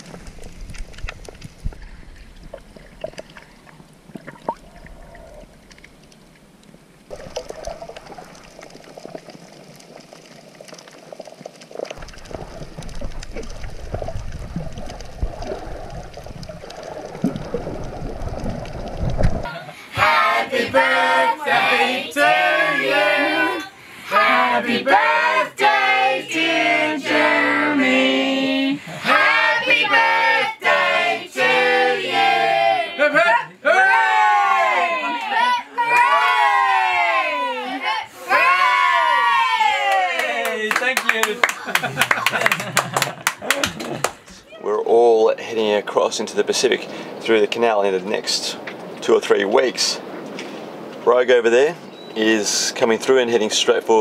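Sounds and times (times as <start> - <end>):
muffled underwater water noise: 0.0 - 24.6, 34.1 - 54.0
group of voices singing: 19.5 - 33.0.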